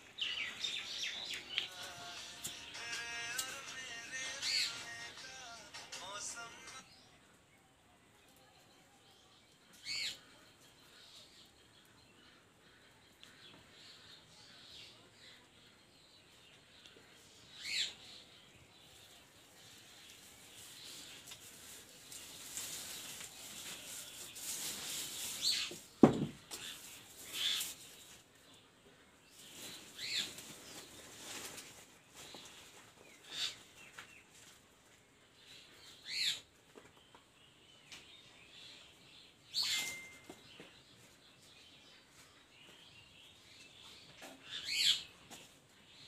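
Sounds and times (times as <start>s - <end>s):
dry straw burning and crackling: 18.8s - 25.8s
bird chirps: 37.9s - 45.4s.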